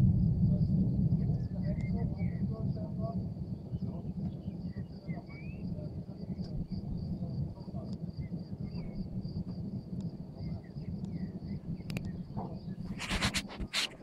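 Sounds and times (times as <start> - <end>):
crickets chirring: 0.0 - 14.0
low rumbling noise: 0.0 - 14.0
bird chirps: 3.8 - 5.7.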